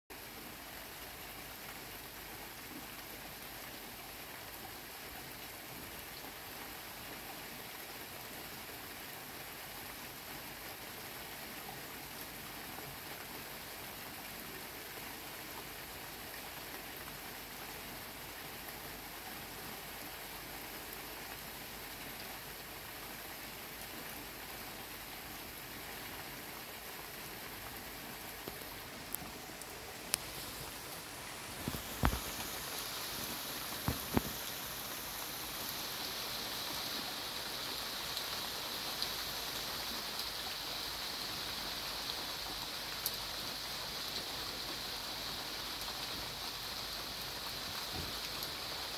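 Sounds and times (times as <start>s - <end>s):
heavy rain falling: 23.7s - 48.9s.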